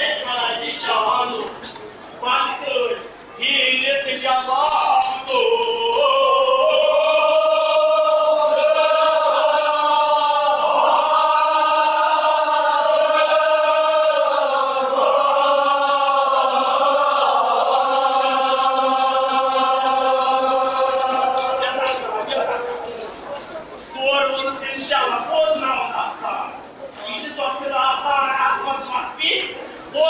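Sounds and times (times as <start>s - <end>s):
group chanting elegy: 4.6s - 23.2s.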